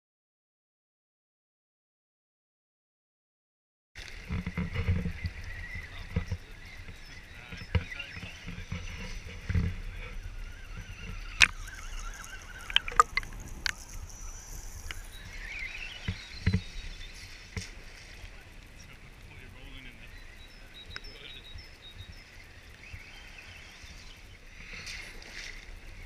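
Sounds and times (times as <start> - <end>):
water splashing and sloshing: 4.0 - 18.7.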